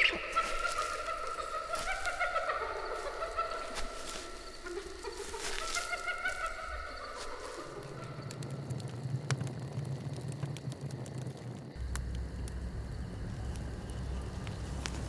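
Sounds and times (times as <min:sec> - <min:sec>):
fire crackling: 0:00.0 - 0:15.0
low steady rumble: 0:08.1 - 0:15.0.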